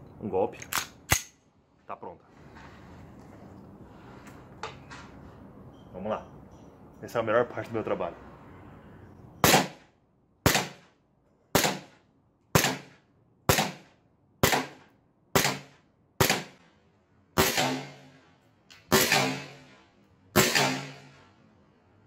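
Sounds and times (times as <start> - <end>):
pistol slide clacking: 0.6 - 1.4
airsoft pistol shots: 9.4 - 9.8, 10.4 - 10.9, 11.6 - 16.6, 17.4 - 18.1, 18.9 - 19.7, 20.4 - 21.1.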